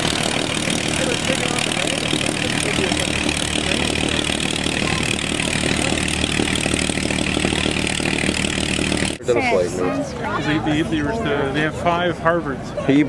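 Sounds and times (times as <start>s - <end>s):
helicopter rotor beating: 0.0s - 9.2s.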